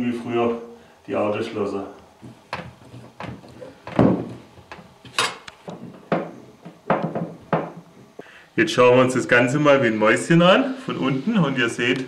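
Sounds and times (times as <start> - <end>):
knocks on wooden bench frame: 2.2 - 7.9.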